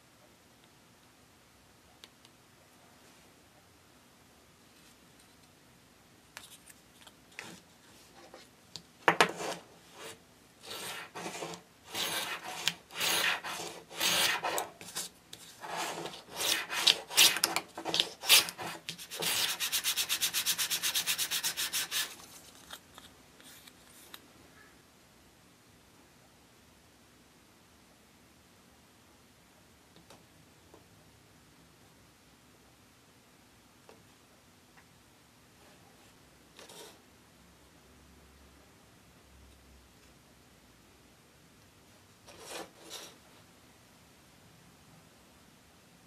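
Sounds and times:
tool scraping wood: 9.1s - 22.1s.

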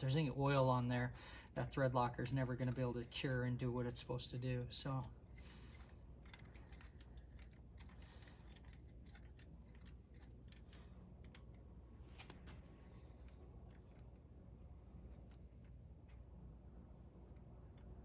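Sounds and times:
metal tool clicks and ticks: 0.0s - 12.4s.

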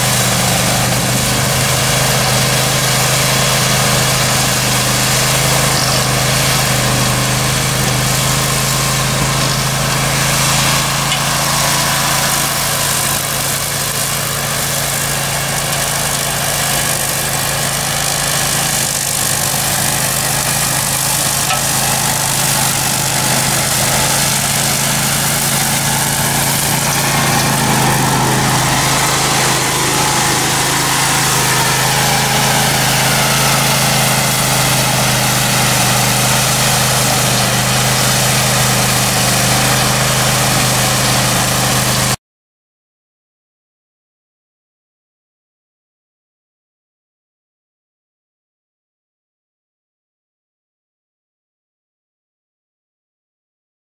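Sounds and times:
ride-on mower engine running: 0.0s - 42.2s.

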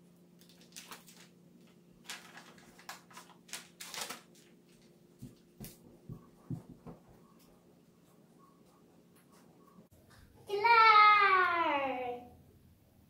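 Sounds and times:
faint steady hum: 0.0s - 13.0s
paper and tape rustling: 0.4s - 5.8s.

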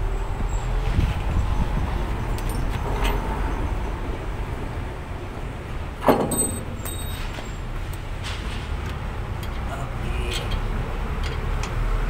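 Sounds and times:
tool clanking on metal: 6.0s - 7.6s, 8.2s - 11.8s.

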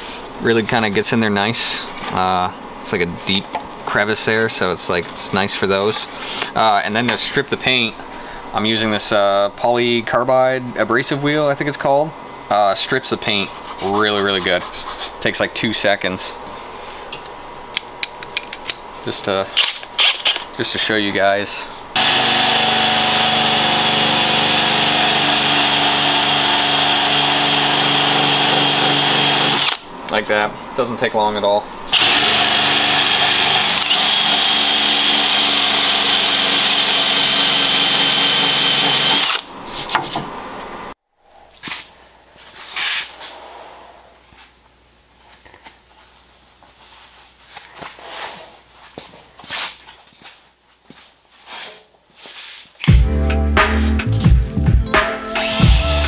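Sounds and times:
drill motor whine: 22.0s - 29.8s, 31.9s - 39.5s.

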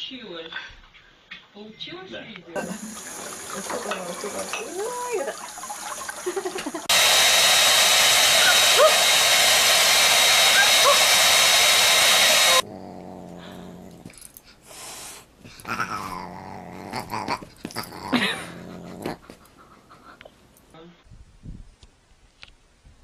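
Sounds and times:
hair dryer running: 6.5s - 12.6s
dog growling and whining: 12.4s - 14.4s, 15.5s - 19.5s.

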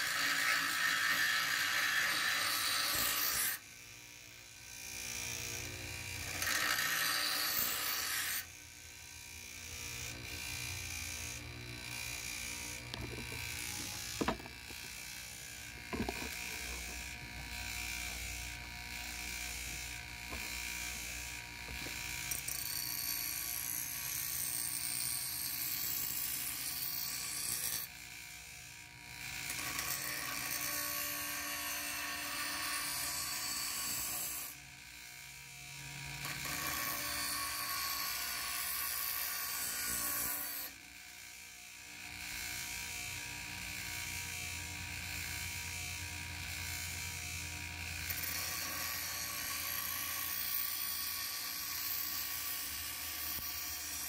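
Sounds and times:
bench grinder grinding metal blade: 0.0s - 54.0s.

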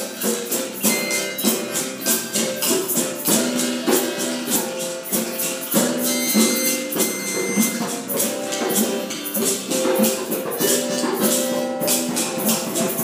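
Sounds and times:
pitched percussion notes ringing: 0.0s - 13.0s
shakers jingling: 0.0s - 13.0s.

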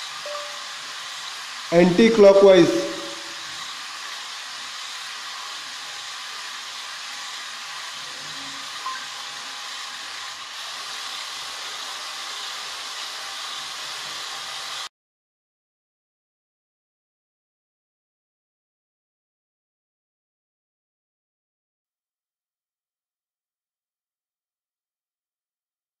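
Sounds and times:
steady hiss: 0.0s - 14.9s
brief high blip: 0.2s - 0.7s.

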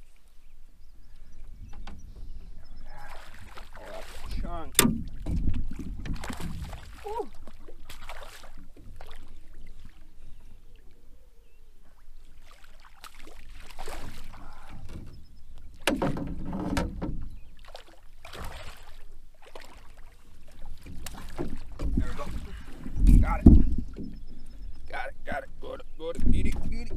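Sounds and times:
fish splashing in water: 2.9s - 4.4s, 5.0s - 10.1s, 12.0s - 16.2s, 17.4s - 23.0s.

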